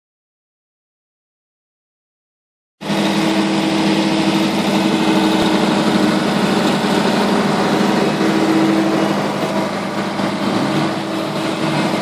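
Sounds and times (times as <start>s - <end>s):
engine humming: 2.8s - 12.0s.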